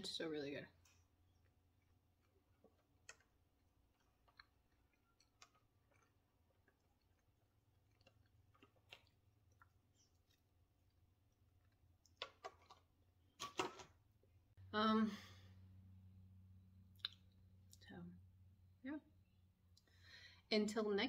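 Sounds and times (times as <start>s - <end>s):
quiet chewing: 0.8s - 12.3s, 16.9s - 17.9s.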